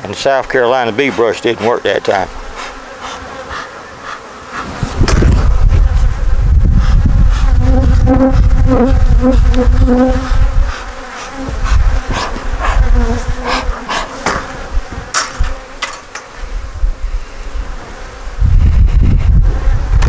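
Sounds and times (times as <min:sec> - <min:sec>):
honeybees buzzing: 0:00.0 - 0:18.5.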